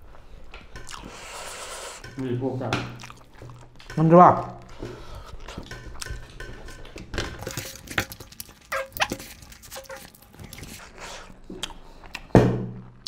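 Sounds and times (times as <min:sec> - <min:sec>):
chewing: 0:00.1 - 0:02.1, 0:02.9 - 0:12.3
fingers squishing food: 0:07.4 - 0:12.3.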